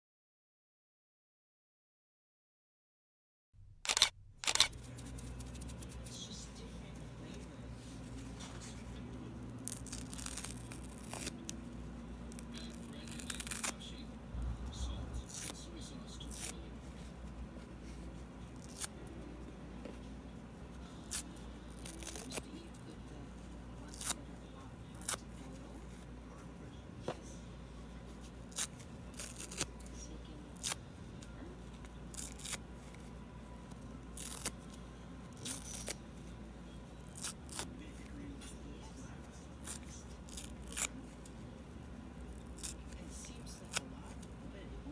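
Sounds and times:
sponge tearing with crackly ripping: 0:09.5 - 0:11.6, 0:12.3 - 0:13.8, 0:18.5 - 0:18.9, 0:21.0 - 0:22.5, 0:23.9 - 0:24.2, 0:28.4 - 0:29.8, 0:32.1 - 0:32.6, 0:34.2 - 0:34.6, 0:35.3 - 0:36.0, 0:37.0 - 0:37.7, 0:39.6 - 0:41.1, 0:42.2 - 0:43.9.

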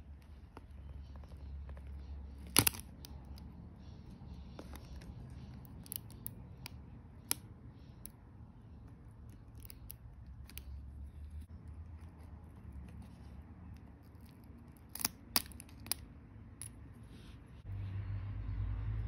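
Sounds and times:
tweezers clicking on plastic: 0:04.6 - 0:08.2, 0:09.2 - 0:10.8.

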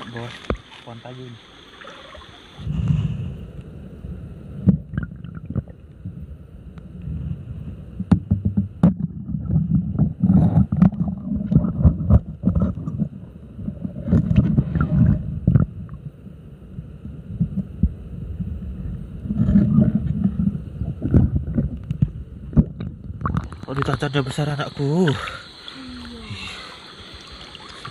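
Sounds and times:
underwater gurgling: 0:01.4 - 0:27.9
muffled underwater rumbling thuds: 0:04.6 - 0:06.3, 0:07.0 - 0:24.1.

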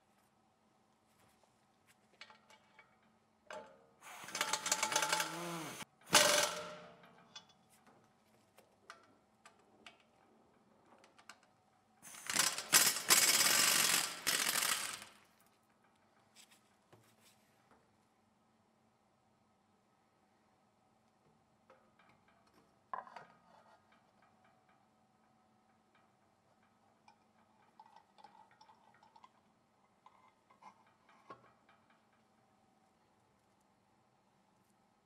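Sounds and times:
pneumatic impact wrench hammering: 0:04.0 - 0:06.9, 0:12.1 - 0:15.2.

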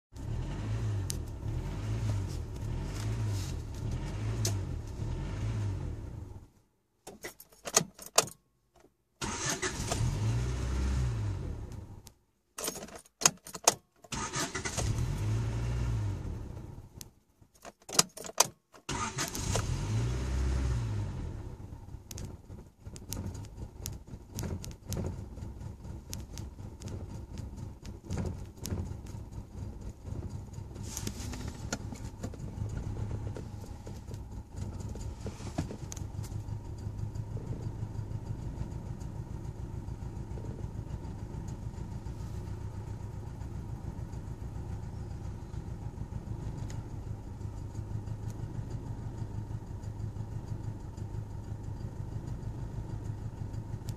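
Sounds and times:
engine small ticks: 0:01.0 - 0:01.4, 0:22.0 - 0:30.7, 0:31.4 - 0:41.8, 0:43.7 - 0:53.9
car engine idling unevenly: 0:21.3 - 0:53.9.

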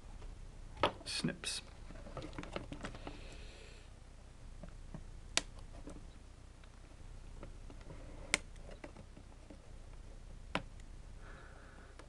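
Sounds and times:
wire snips clicking: 0:05.4 - 0:05.7.

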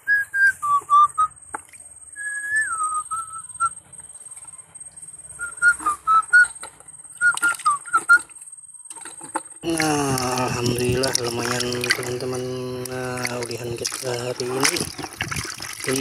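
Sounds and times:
person whistling a tune: 0:00.0 - 0:01.3, 0:02.2 - 0:03.8, 0:05.4 - 0:06.6, 0:07.2 - 0:08.3.

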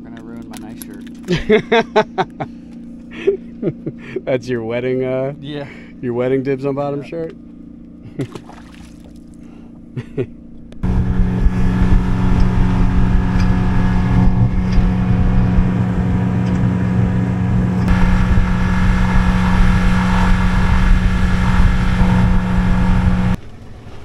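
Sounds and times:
outboard motor droning: 0:01.0 - 0:24.0.

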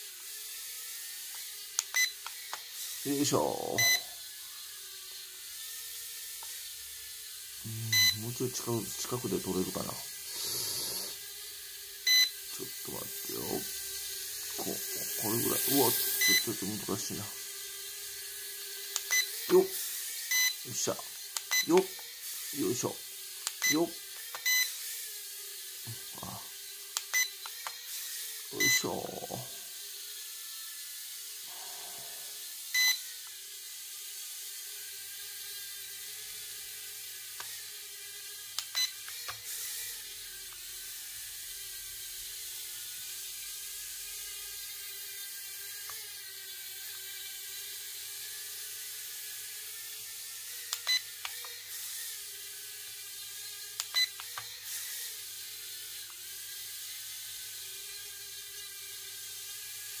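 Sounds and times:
toy drone motors whining: 0:00.0 - 1:00.0
short electronic beeps: 0:03.8 - 0:04.1, 0:07.9 - 0:08.2, 0:12.1 - 0:12.3, 0:16.2 - 0:16.5, 0:21.5 - 0:21.7, 0:28.6 - 0:28.9.

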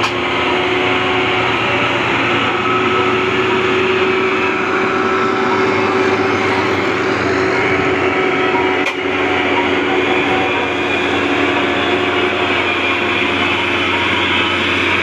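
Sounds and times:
truck diesel engines running: 0:00.0 - 0:15.0.

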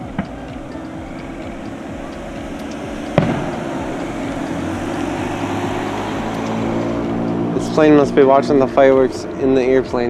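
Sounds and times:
airplane drone overhead: 0:00.0 - 0:10.0
firework bang: 0:03.1 - 0:04.4.

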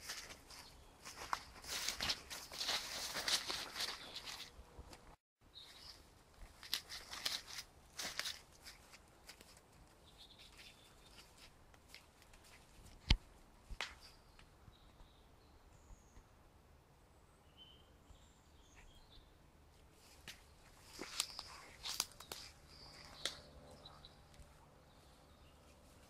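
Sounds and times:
footsteps crunching dry leaves: 0:00.0 - 0:04.6, 0:05.6 - 0:09.7, 0:20.0 - 0:23.4
sharp twig snap: 0:21.0 - 0:23.5.

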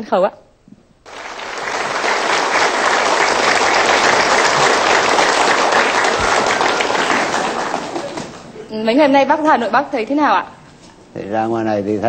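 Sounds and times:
audience applauding: 0:01.1 - 0:08.7.

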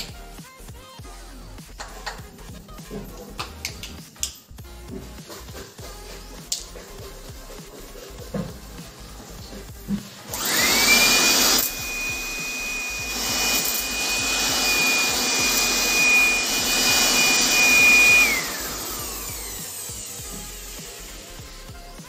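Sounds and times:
electric air blower whine: 0:10.0 - 0:22.0.

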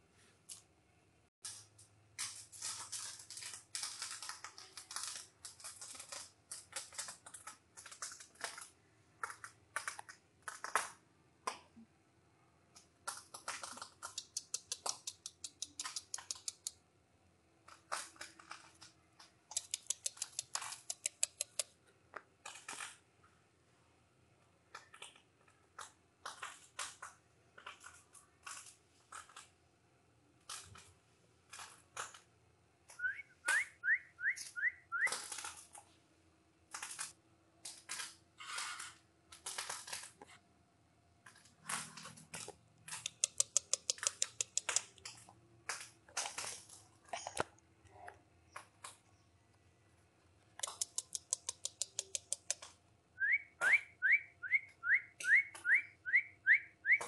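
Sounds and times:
puppy claws clicking on concrete: 0:01.4 - 0:11.8, 0:12.7 - 0:16.8, 0:17.6 - 0:23.1, 0:24.6 - 0:29.6, 0:30.4 - 0:33.7, 0:34.3 - 0:36.0, 0:36.7 - 0:40.4, 0:41.2 - 0:47.6, 0:48.5 - 0:49.6, 0:50.5 - 0:52.8.

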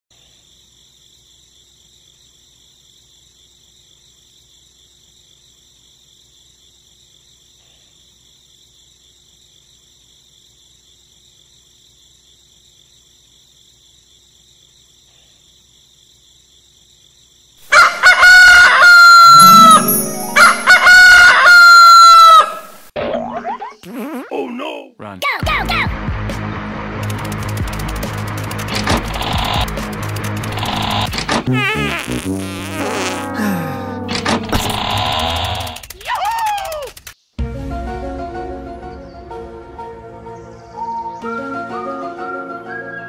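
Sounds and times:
rooster crowing: 0:17.7 - 0:19.4, 0:20.3 - 0:22.8.

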